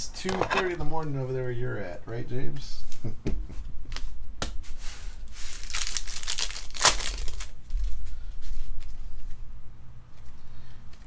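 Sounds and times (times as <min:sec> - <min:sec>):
plastic wrapper crinkling: 0:05.3 - 0:08.0.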